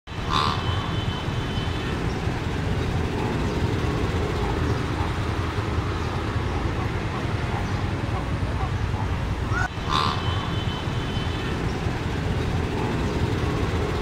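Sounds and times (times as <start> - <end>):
low rumble of distant traffic: 0.1 - 14.0.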